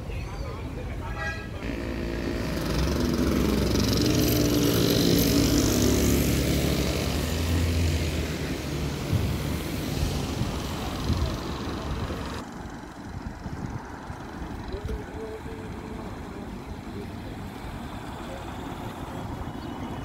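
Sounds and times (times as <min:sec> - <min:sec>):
car driving past: 0:01.6 - 0:12.4.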